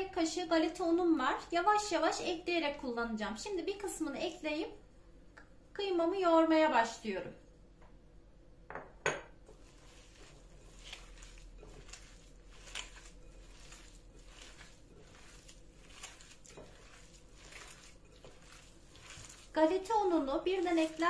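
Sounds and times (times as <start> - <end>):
hands squelching raw meat: 9.5 - 21.0.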